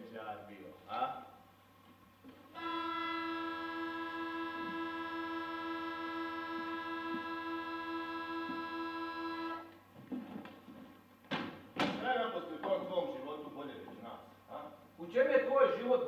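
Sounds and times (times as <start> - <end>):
sustained musical chord: 2.6 - 9.6.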